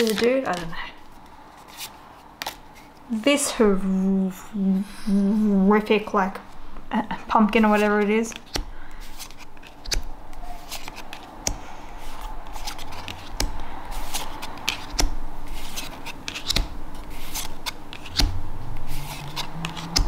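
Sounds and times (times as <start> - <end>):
cards flipped papery swishes: 7.7 - 20.0.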